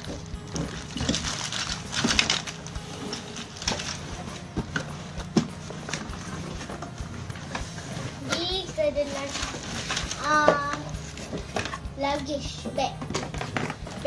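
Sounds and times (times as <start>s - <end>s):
plastic bag crinkling: 0.0s - 4.4s, 9.0s - 10.5s
plastic toys clicking and knocking: 0.0s - 14.0s.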